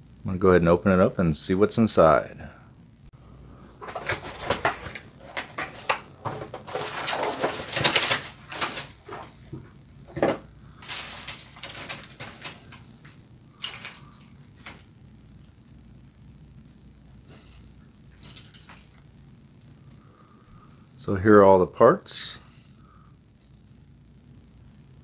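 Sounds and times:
plastic bags crinkling: 3.8s - 9.6s, 10.8s - 14.9s.

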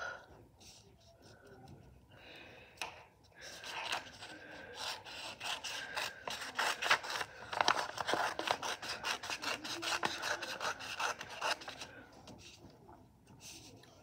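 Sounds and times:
paper rustling: 3.4s - 14.0s
scissors snipping paper: 3.6s - 11.9s.

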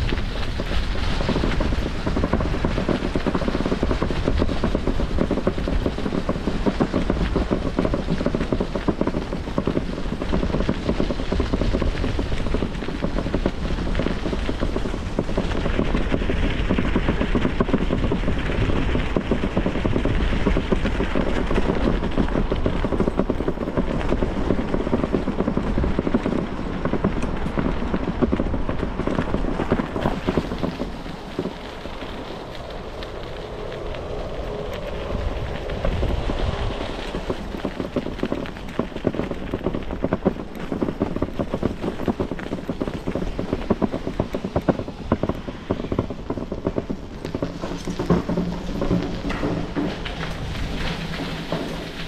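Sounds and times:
bicycle crackle and rattle: 0.0s - 52.0s
wind rushing over microphone: 0.0s - 52.0s.

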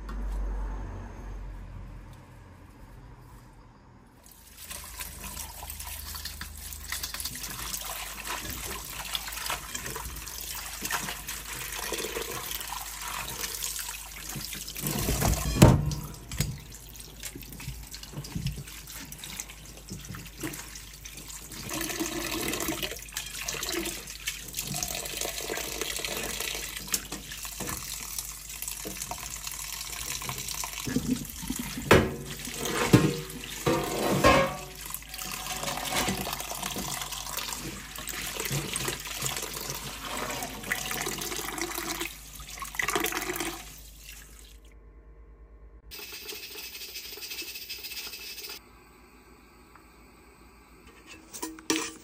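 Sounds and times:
tap water running into sink: 4.5s - 44.4s.

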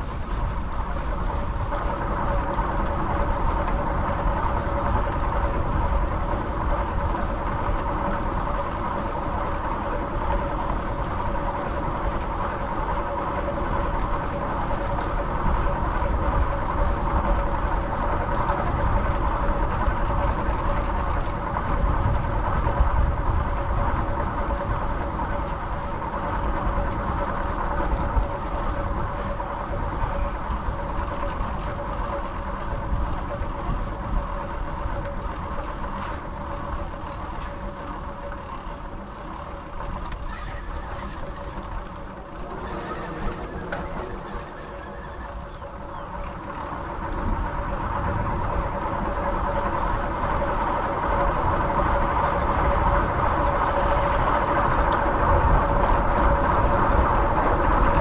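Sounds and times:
bicycle rolling noise: 0.0s - 58.0s
faint steady hum: 0.0s - 58.0s
wind rush: 40.1s - 58.0s.

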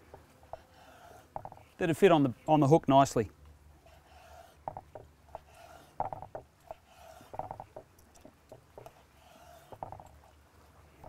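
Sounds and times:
knife knocking on wooden board: 1.4s - 1.6s.

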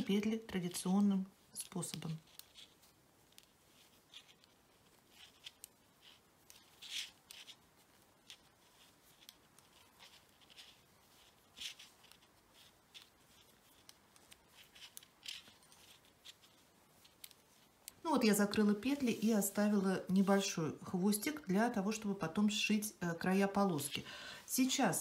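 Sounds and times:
knitting needles clicking: 0.0s - 19.0s
yarn rubbing: 0.0s - 25.0s.

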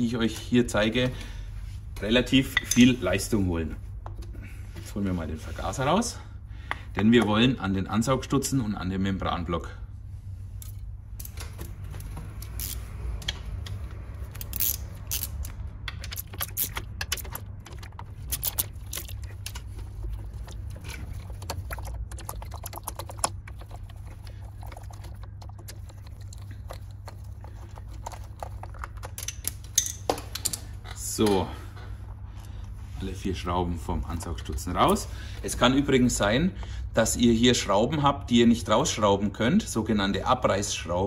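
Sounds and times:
steady low hum: 0.0s - 41.0s
nut driver clicking and rattling: 10.6s - 19.8s, 28.0s - 30.9s.

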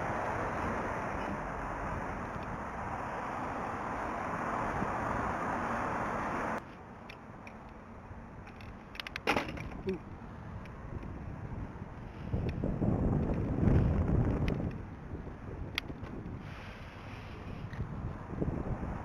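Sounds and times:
road ambience: 0.0s - 19.0s
clicks and rattles: 8.4s - 10.0s
wind buffeting microphone: 10.4s - 19.0s.

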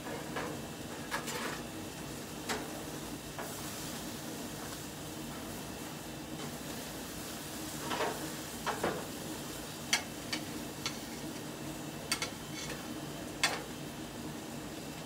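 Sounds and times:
metal utensils scraping grill grate: 1.1s - 1.6s, 12.1s - 13.7s.

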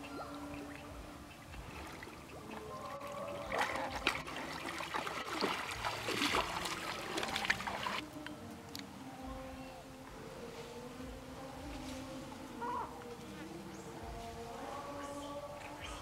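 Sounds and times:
deer splashing through water: 0.0s - 8.1s.

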